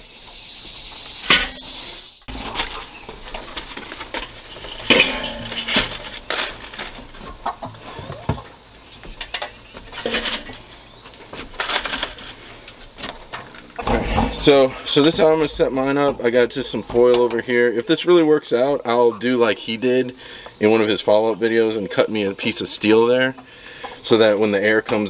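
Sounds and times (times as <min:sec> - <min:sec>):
metal basket clanking and rattling: 0:02.3 - 0:07.5, 0:09.1 - 0:10.7, 0:13.2 - 0:17.3.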